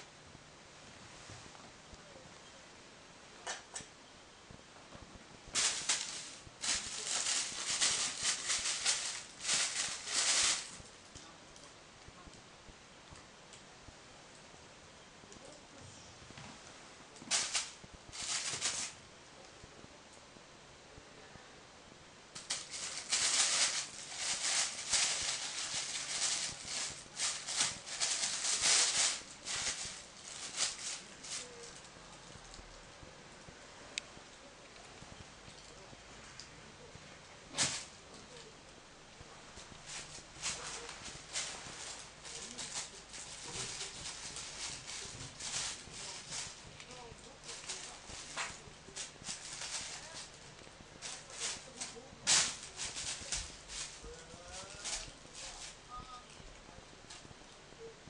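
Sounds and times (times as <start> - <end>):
plastic bag crinkling: 5.6 - 10.9, 17.2 - 19.0, 22.4 - 32.6, 39.8 - 56.4.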